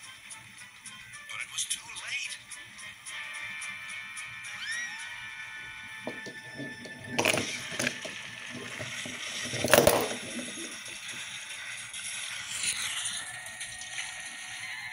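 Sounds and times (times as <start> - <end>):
toy crash: 6.1 - 11.3
wooden toy train cars clattering: 6.1 - 11.3.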